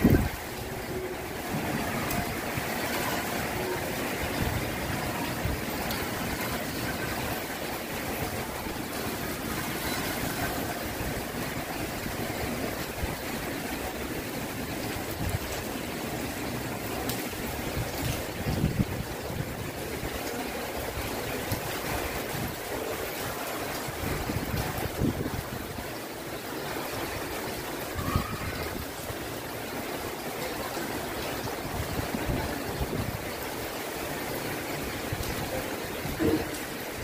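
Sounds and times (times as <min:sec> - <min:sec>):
wind buffeting microphone: 0:00.0 - 0:29.6, 0:31.4 - 0:37.0
heavy rain pouring: 0:00.0 - 0:37.0.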